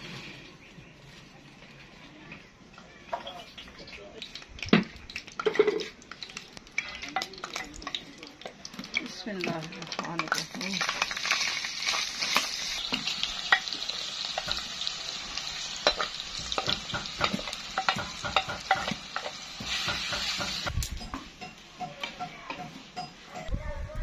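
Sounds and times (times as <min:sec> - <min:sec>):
chicken sizzling in hot oil: 0:03.3 - 0:21.0.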